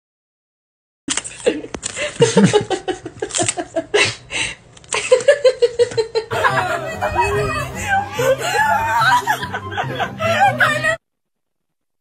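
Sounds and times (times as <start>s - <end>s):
person laughing: 1.3s - 4.2s, 4.9s - 11.0s.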